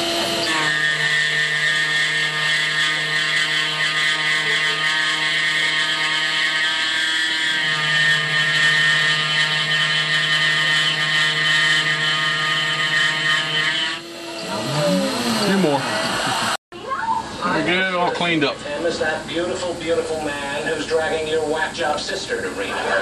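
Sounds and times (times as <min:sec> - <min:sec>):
milling cutter whine: 0:00.0 - 0:16.6.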